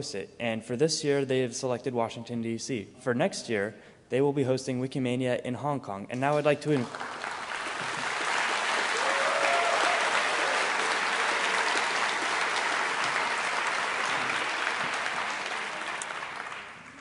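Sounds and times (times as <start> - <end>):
audience applauding: 6.8 - 17.0.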